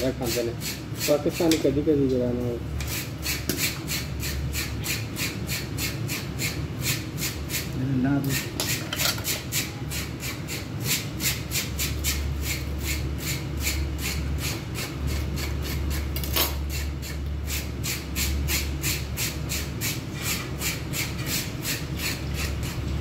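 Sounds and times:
fish scaler scraping scales: 16.7 - 22.9.

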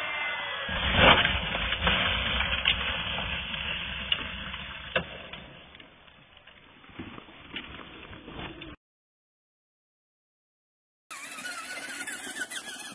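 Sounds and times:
tyres on loose gravel: 0.7 - 8.8.

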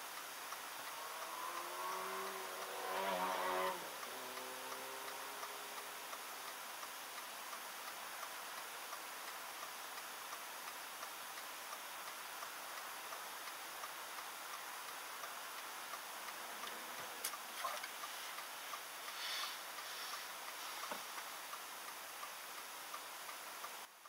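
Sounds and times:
light ticking: 0.0 - 24.0
car cabin hiss: 16.7 - 21.5.

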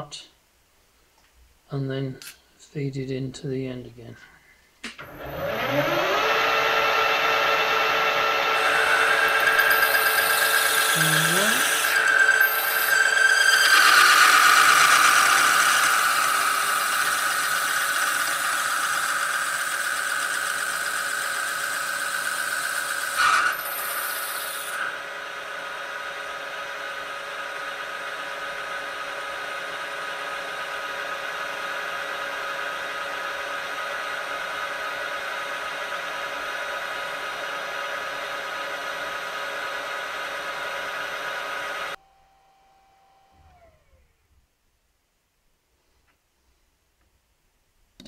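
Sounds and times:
lathe running hum: 5.0 - 44.2
lathe cutting hiss and whine: 5.1 - 26.3.

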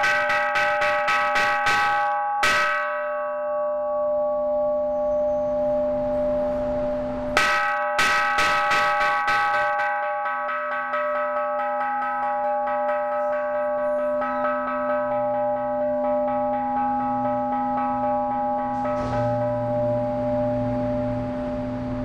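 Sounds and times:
temple bell ringing: 0.0 - 22.0.

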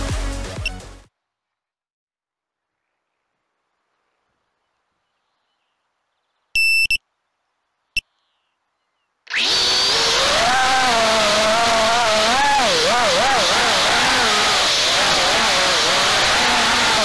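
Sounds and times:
short electronic beeps: 6.6 - 7.0
quadcopter motors whining: 9.3 - 17.0.

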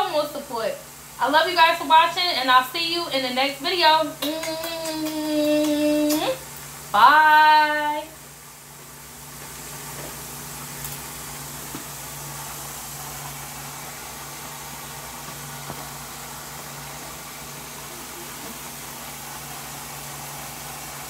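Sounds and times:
hiss: 8.4 - 21.0.

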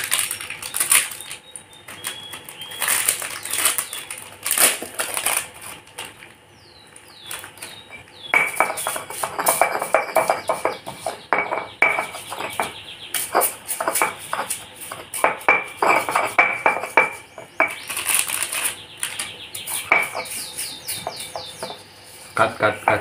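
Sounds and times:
stone mortar and pestle pounding: 7.9 - 17.9, 19.6 - 21.8, 22.7 - 23.0.

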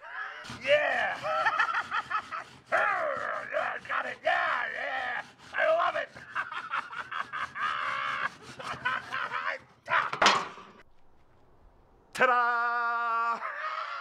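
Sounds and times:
man shouting drawn-out: 0.0 - 1.4, 2.7 - 6.2, 9.2 - 10.2, 12.2 - 14.0
man yelling: 0.0 - 1.5, 2.7 - 6.2, 9.1 - 10.4, 12.2 - 14.0
man laughing wildly: 0.6 - 10.3.

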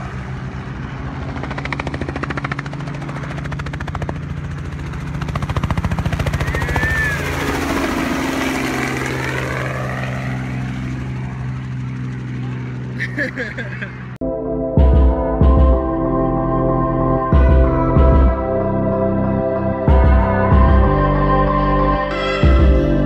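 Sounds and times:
helicopter rotor chop: 0.0 - 14.2
helicopter engine drone: 0.0 - 23.0.

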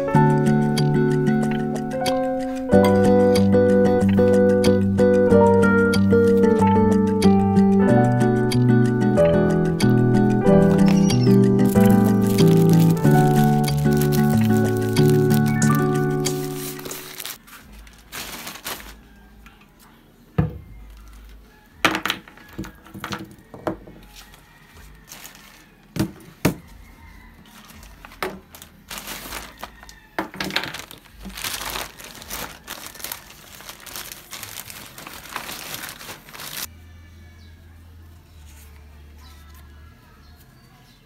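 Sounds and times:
packaging crinkling and rustling: 10.6 - 19.2, 24.1 - 25.8, 27.5 - 36.7.

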